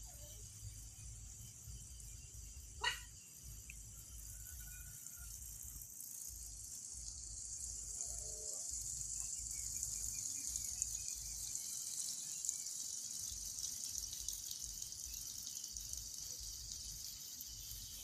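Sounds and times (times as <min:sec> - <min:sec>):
night insect chorus: 0:00.0 - 0:18.0.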